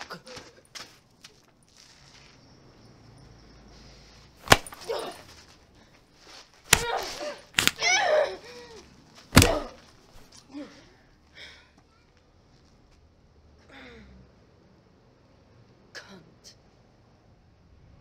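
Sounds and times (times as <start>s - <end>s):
hard punches landing: 4.4s - 5.2s, 6.7s - 7.9s, 9.3s - 9.8s
woman grunting and crying out: 6.8s - 8.8s, 9.4s - 9.8s.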